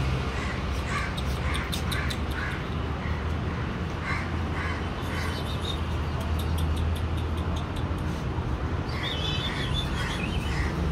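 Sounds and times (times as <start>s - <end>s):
crow cawing: 0.4s - 5.4s.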